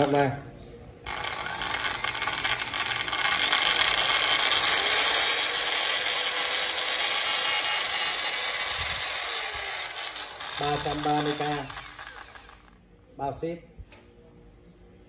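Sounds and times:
electric drill motor whine: 0:01.0 - 0:12.8.

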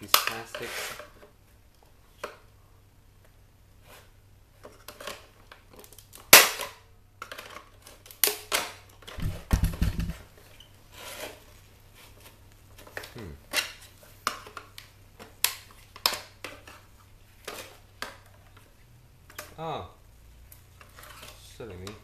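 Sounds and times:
low thuds: 0:09.2 - 0:10.2.

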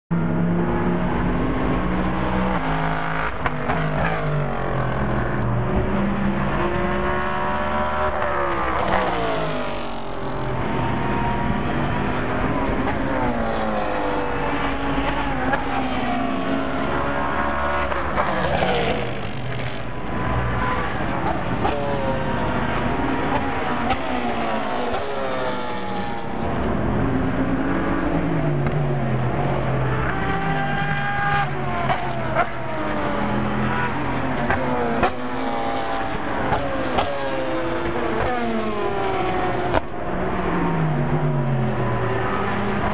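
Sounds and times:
race car engines revving: 0:00.1 - 0:42.9
cars passing close: 0:00.2 - 0:42.9.

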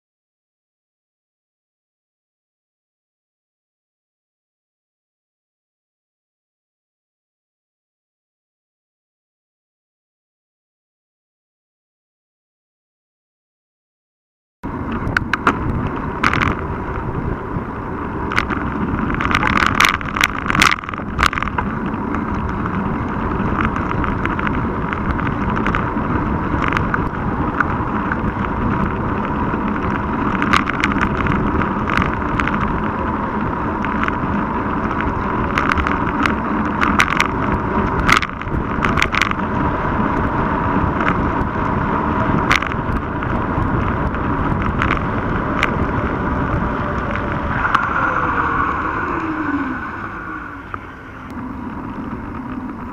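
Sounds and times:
wind noise: 0:14.6 - 0:52.9
bike rattles and knocks: 0:14.7 - 0:49.0.

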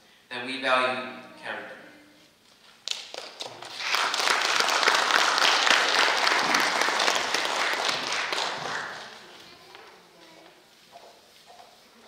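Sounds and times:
audience applause: 0:03.0 - 0:09.4.

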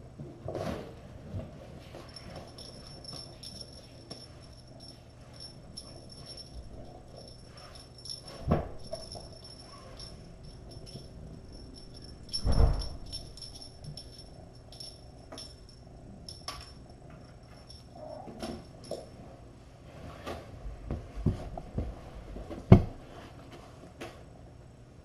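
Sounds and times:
jingle bell tinkling: 0:02.0 - 0:19.0.

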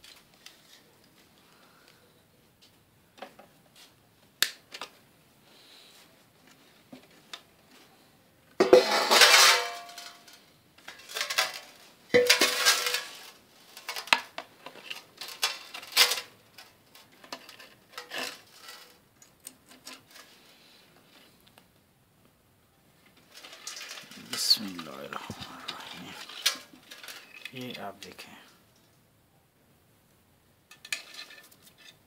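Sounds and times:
scraping clatters: 0:08.6 - 0:19.0, 0:23.2 - 0:27.6, 0:30.7 - 0:32.0
clay pot clattering in metal pan: 0:12.2 - 0:13.1.

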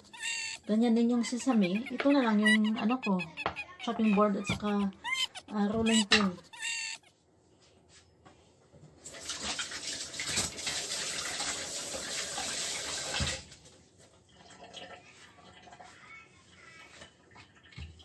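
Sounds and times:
tap running into sink: 0:09.2 - 0:13.5.

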